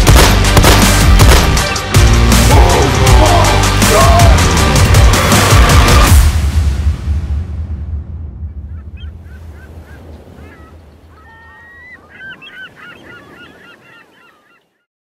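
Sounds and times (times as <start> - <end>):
music: 0.0 - 9.1
gulls calling: 8.4 - 14.9.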